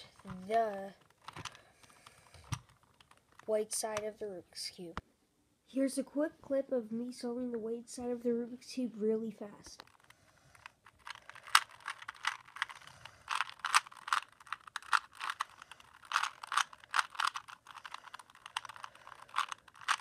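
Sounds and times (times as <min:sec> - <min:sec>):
puzzle cube clicking as twisted: 0:00.2 - 0:04.1, 0:09.8 - 0:20.0.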